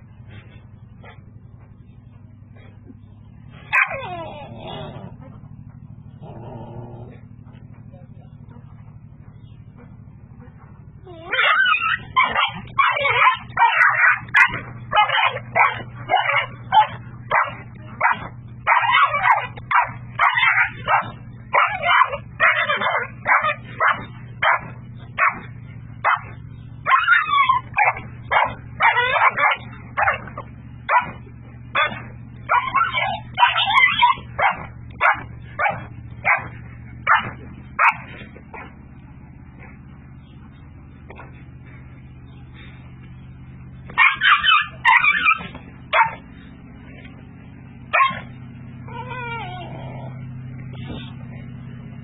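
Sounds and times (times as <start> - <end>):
low hum: 0.0 - 52.0
dog yelping and barking: 3.7 - 5.3, 11.0 - 38.8, 43.9 - 46.3, 47.9 - 50.4.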